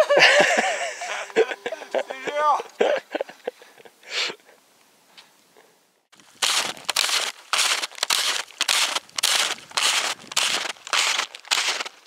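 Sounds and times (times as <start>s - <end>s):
snowshoe footsteps crunching snow: 6.1s - 12.0s.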